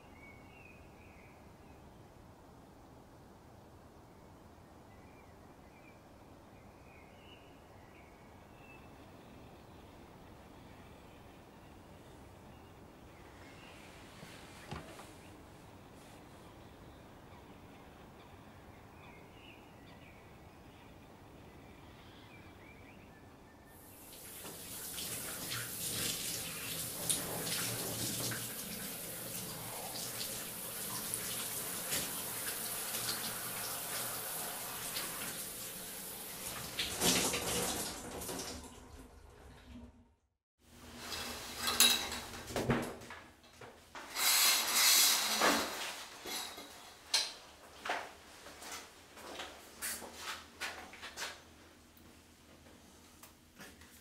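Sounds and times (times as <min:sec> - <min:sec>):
loud hissing rush: 0:23.8 - 0:36.2
shower water spraying on tiles: 0:23.8 - 0:38.7.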